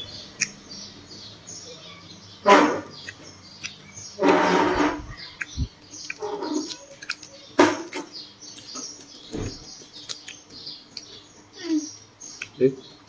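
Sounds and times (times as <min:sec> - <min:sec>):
crunchy food chewing: 0:02.5 - 0:12.6.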